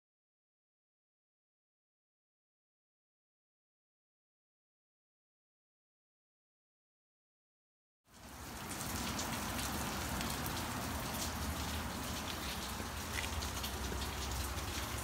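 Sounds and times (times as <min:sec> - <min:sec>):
rain falling: 0:08.1 - 0:15.0.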